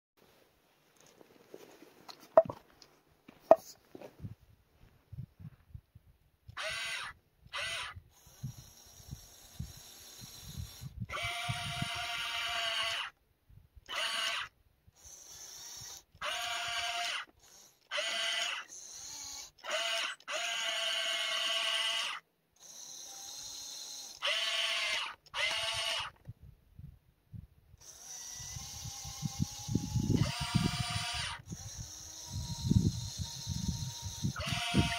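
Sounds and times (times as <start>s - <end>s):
dirt and stones crunching: 0.8s - 5.2s
electric gear motors whining: 6.5s - 13.2s, 13.9s - 26.2s, 27.8s - 34.9s.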